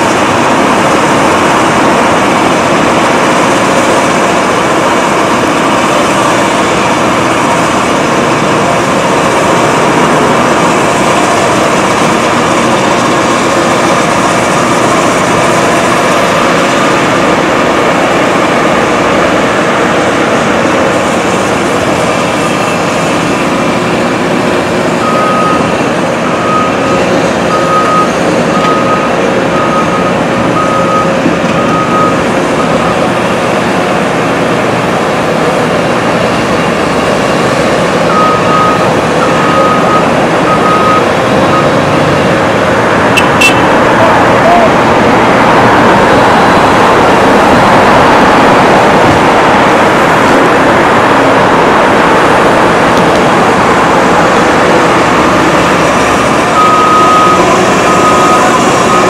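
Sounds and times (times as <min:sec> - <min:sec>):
excavator diesel engine running: 0:00.0 - 0:59.0
travel alarm beeping: 0:25.0 - 0:33.2, 0:38.0 - 0:41.8, 0:43.2 - 0:43.7, 0:56.2 - 0:59.0.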